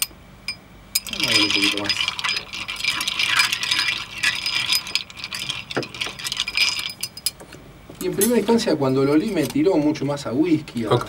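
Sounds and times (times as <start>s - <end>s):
ice cubes clinking in glass: 1.0s - 7.4s.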